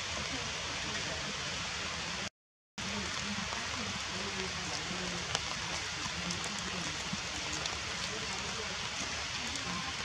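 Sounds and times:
faint low voices: 0.0s - 10.0s
rain falling: 0.0s - 10.0s.

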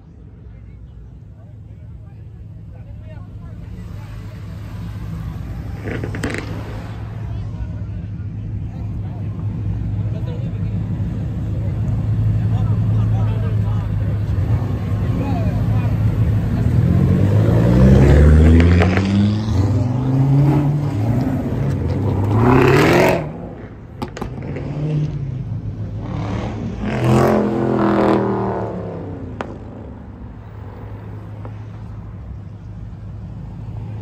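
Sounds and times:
car engine revving hard: 16.5s - 23.5s, 26.0s - 29.3s.

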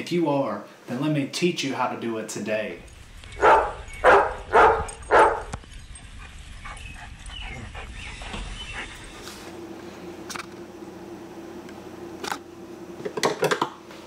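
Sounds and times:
dog barking: 3.4s - 5.5s.

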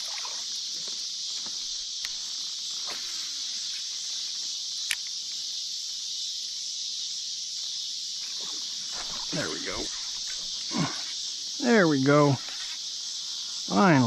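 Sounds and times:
insects buzzing: 0.0s - 14.0s
sharp clicks: 4.8s - 5.2s.

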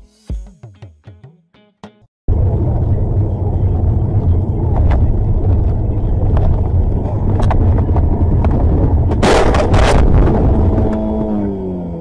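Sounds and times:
road and engine rumble: 2.3s - 12.0s
car collision crash: 9.1s - 10.6s.

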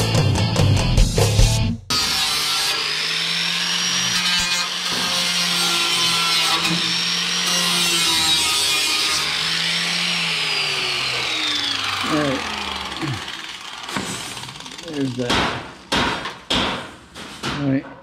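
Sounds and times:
angle grinder grinding metal: 1.9s - 15.9s.

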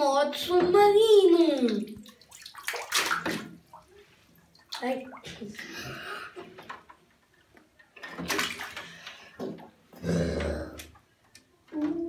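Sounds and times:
bathtub water splashing: 0.0s - 12.0s.

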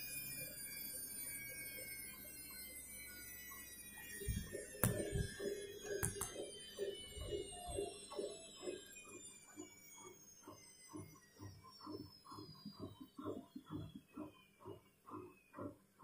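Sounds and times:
faint high whine: 0.0s - 15.6s
low thumps: 4.3s - 5.4s
sharp taps: 4.8s - 6.4s.

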